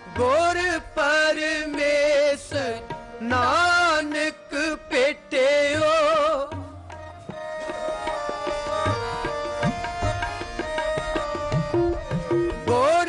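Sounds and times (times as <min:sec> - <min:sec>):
person singing: 0:00.0 - 0:11.0, 0:12.1 - 0:13.0
harmonium chords: 0:00.0 - 0:13.0
tabla strokes: 0:05.8 - 0:13.0.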